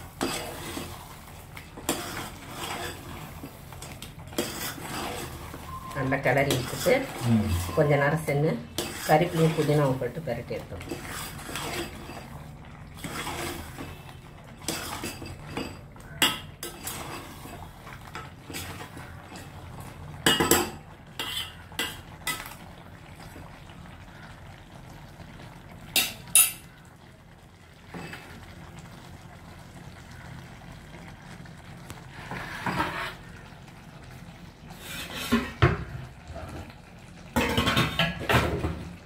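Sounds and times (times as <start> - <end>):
ladle scraping a metal pot: 0.0 - 12.4, 13.0 - 19.5, 20.2 - 22.6, 32.1 - 33.4, 34.7 - 35.7.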